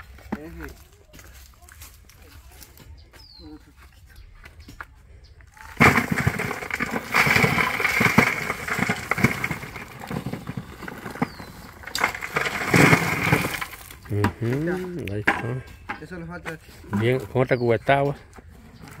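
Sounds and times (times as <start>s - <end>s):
earth clattering onto metal sheet: 5.6s - 15.4s.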